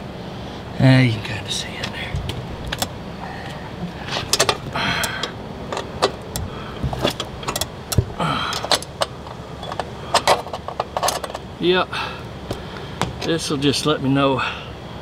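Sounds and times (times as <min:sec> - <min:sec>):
wrench rasping: 0:04.1 - 0:11.5
wrench clicking on metal: 0:04.3 - 0:11.4.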